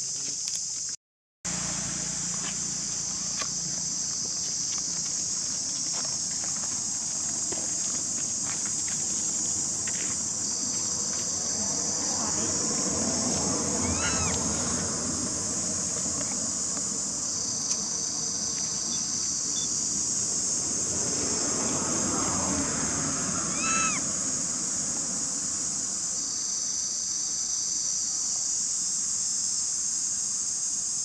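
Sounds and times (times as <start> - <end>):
insects chorus: 0.0 - 31.0.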